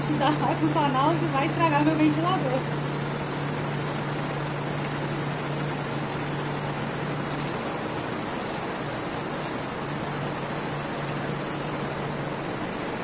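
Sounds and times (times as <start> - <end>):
electric fan running: 0.0 - 13.0.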